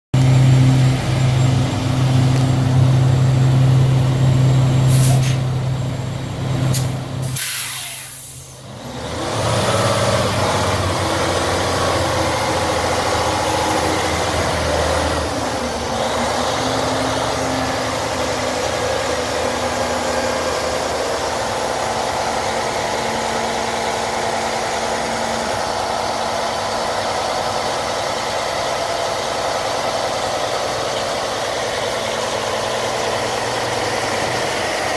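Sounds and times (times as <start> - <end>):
diesel truck engine running: 0.1 - 34.9
air hiss: 4.9 - 5.5, 6.7 - 8.6.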